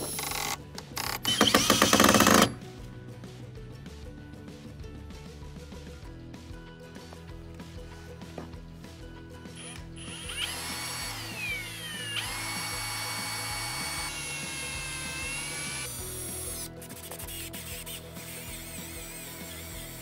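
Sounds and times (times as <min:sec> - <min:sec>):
cordless drill boring through metal: 0:00.0 - 0:02.6, 0:09.6 - 0:16.7, 0:18.2 - 0:20.0.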